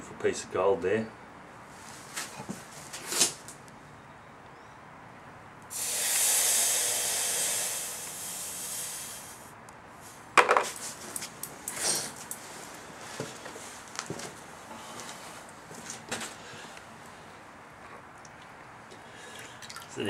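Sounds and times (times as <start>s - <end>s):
hot metal hissing in water: 5.7s - 9.5s.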